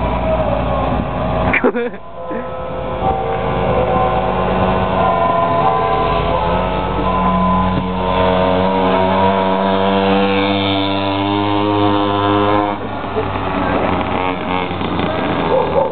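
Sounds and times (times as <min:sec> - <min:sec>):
two-stroke engine high revs: 0:06.2 - 0:15.9.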